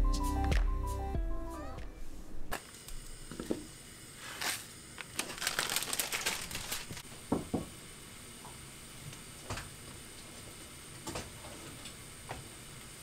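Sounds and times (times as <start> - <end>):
packaging crinkling: 4.2 - 7.0.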